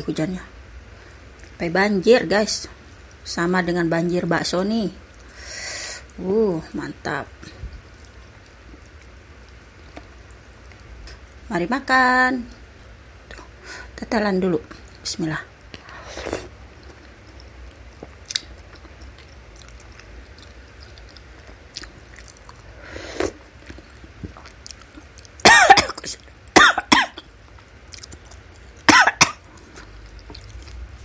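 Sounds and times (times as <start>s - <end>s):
chewing and slurping soup: 15.6s - 25.4s
woman coughing hard: 25.4s - 27.2s, 28.9s - 29.4s.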